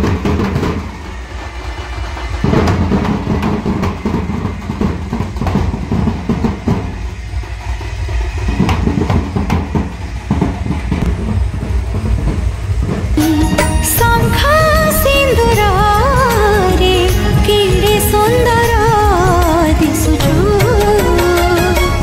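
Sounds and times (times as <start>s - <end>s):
heavy low rumble: 0.0s - 22.0s
song with singing: 13.2s - 22.0s.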